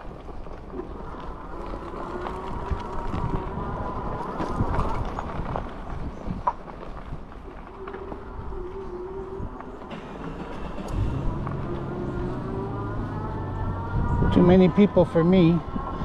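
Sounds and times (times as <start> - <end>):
bike rattling over bumps: 0.0 - 8.7
tyres crunching on gravel: 0.0 - 15.9.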